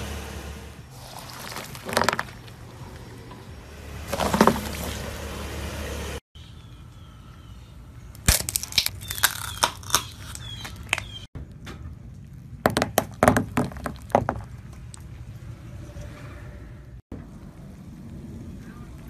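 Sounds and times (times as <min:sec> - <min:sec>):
wood cracking and crunching: 0:00.9 - 0:03.1, 0:08.2 - 0:11.2.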